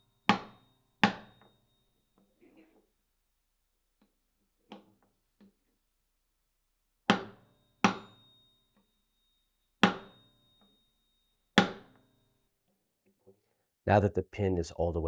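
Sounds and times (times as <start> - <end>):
hammer striking metal punch: 0.1 - 1.7, 7.1 - 8.9, 9.8 - 10.8, 11.6 - 12.2
thin high metallic ring: 7.4 - 12.5.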